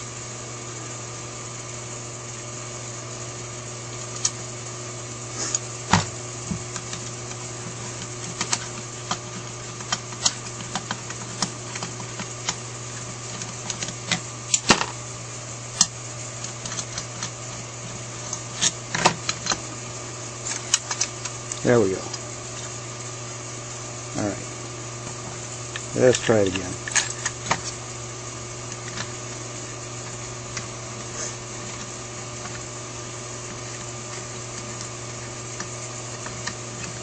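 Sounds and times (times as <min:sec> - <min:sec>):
low background hum: 0:00.0 - 0:37.0
metal parts clicking and tapping: 0:08.0 - 0:12.6.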